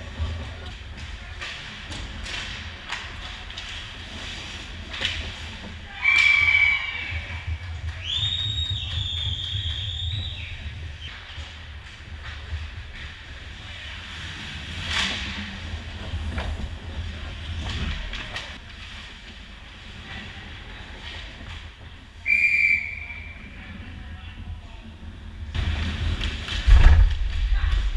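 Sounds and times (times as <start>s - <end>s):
skates and sticks scraping ice: 0.0s - 8.4s, 9.0s - 22.0s
low rink rumble: 0.0s - 22.3s, 22.9s - 27.9s
referee's whistle: 22.3s - 23.3s.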